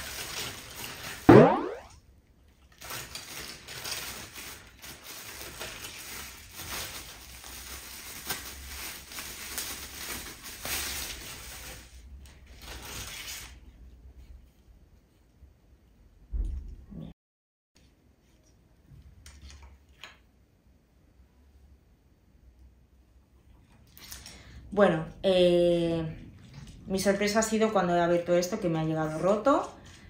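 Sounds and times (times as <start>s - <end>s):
packing paper and plastic rustling: 0.0s - 1.3s, 2.5s - 13.7s.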